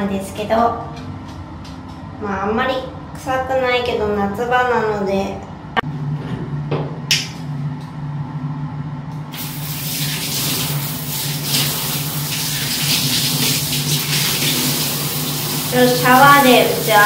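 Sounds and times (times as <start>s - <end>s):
shower water spraying: 9.4s - 17.0s.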